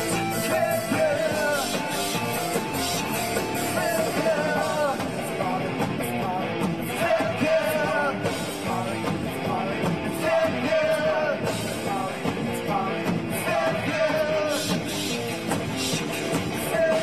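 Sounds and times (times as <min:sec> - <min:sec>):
live rock band playing: 0:00.0 - 0:17.0
man singing into a microphone: 0:00.3 - 0:17.0.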